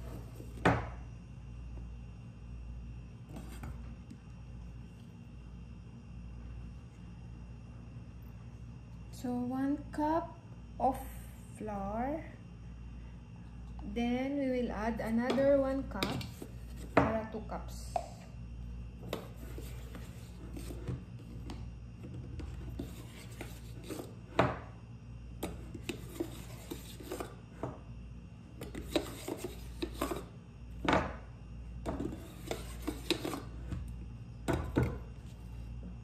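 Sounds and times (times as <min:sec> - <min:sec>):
cup scooping and scraping flour: 0:19.0 - 0:24.3, 0:25.4 - 0:27.4, 0:28.5 - 0:30.4, 0:31.9 - 0:33.9.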